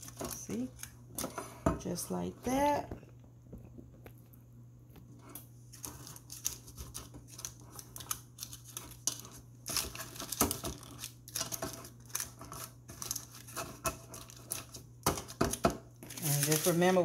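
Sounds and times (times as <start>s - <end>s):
paper liners rustling: 0.0s - 1.3s, 5.7s - 17.0s.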